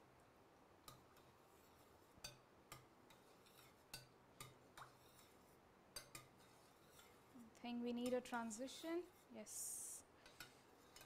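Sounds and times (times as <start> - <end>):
metal spoon clinking on steel pot: 10.2 - 11.0.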